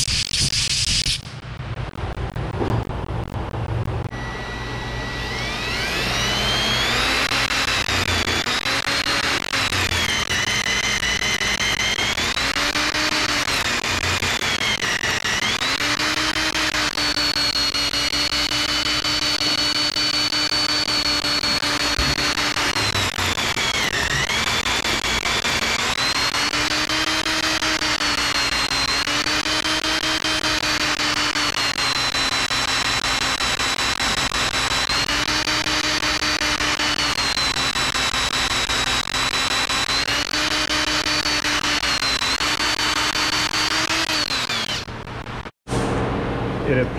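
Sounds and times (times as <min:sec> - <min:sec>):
electric drill motor whining: 0:04.0 - 0:45.5
grinding of metal being cut: 0:04.1 - 0:44.9.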